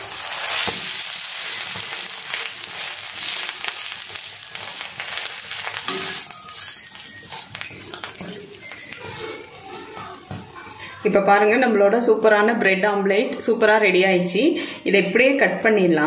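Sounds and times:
omelette sizzling on griddle: 0:00.0 - 0:10.9.

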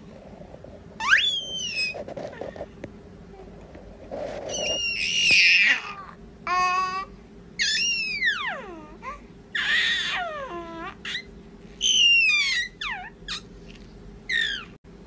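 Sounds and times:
baby babbling and squealing: 0:01.0 - 0:02.0, 0:04.5 - 0:13.4, 0:14.3 - 0:14.8.

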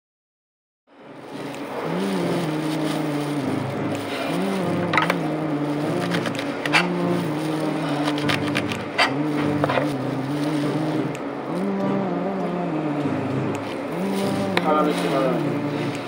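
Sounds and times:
steady low hum: 0:00.9 - 0:16.0
clicks and rustles of greens: 0:01.2 - 0:11.7.

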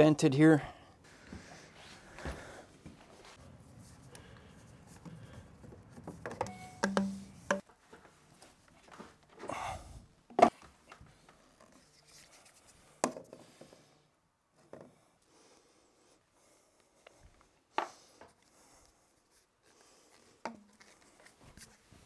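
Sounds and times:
plastic pipe knocking and rubbing: 0:05.7 - 0:07.7.

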